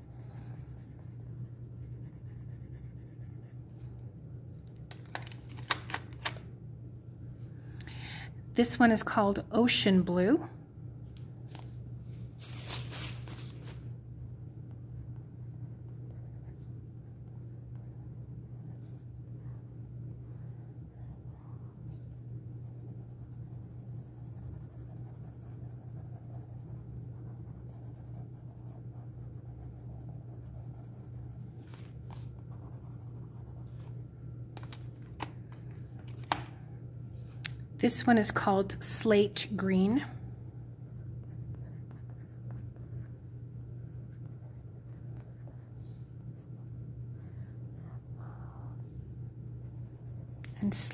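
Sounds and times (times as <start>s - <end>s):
pencil scratching on paper: 0.0s - 3.6s, 22.6s - 31.8s, 32.4s - 33.9s
steady low hum: 0.0s - 50.9s.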